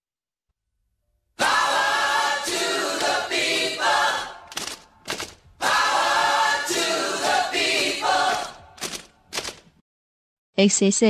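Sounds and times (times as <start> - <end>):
group of voices singing: 1.4 - 4.7, 5.6 - 8.8.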